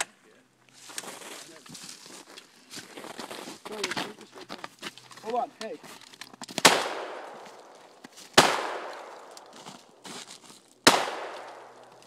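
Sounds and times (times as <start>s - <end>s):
shotgun blasts with echo: 6.6s - 7.7s, 8.4s - 9.3s, 10.8s - 11.9s.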